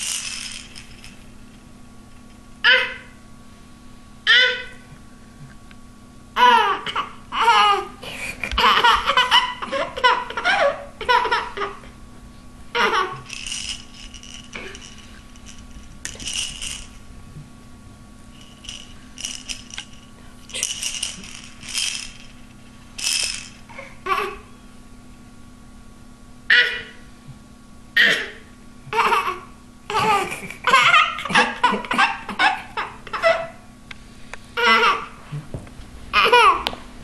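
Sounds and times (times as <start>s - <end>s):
plastic toy rattling: 0.0s - 1.3s, 12.8s - 17.0s, 18.4s - 23.7s
baby giggling and squealing: 8.5s - 11.8s, 12.8s - 13.3s, 23.7s - 24.4s, 29.0s - 33.6s, 34.6s - 35.1s, 36.2s - 36.6s.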